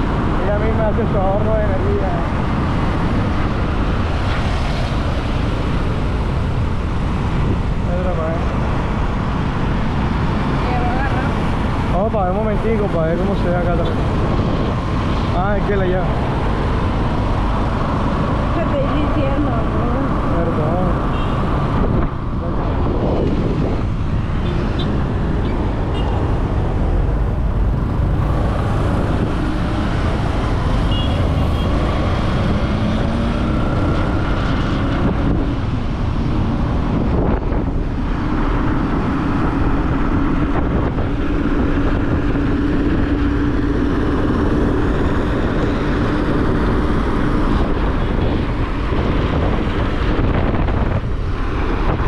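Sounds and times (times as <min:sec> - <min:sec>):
road traffic: 0:00.0 - 0:52.0
wind buffeting microphone: 0:13.2 - 0:52.0.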